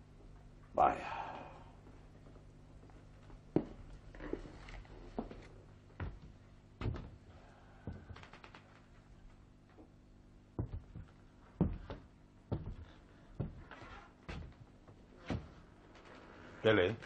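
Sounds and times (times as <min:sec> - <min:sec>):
faint low hum: 0:00.0 - 0:17.0
footsteps on wooden floor: 0:02.8 - 0:07.2, 0:07.8 - 0:08.2, 0:10.6 - 0:15.7.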